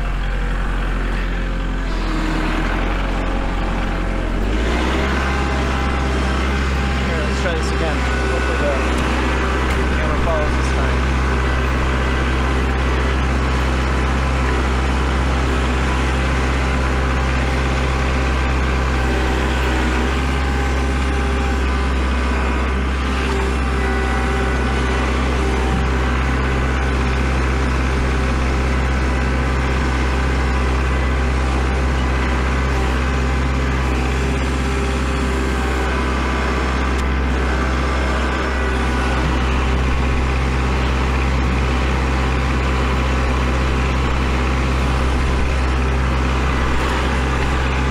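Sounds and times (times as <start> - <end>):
tractor diesel engine droning: 0.0 - 47.9.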